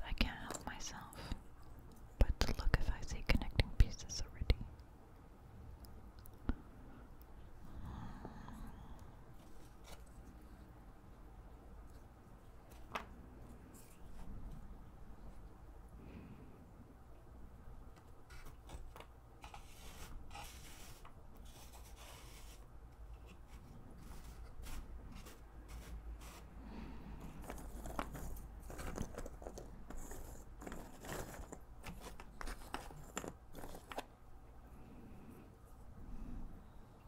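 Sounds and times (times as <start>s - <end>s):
hand brushing through puzzle pieces: 18.3s - 26.6s, 27.2s - 34.1s.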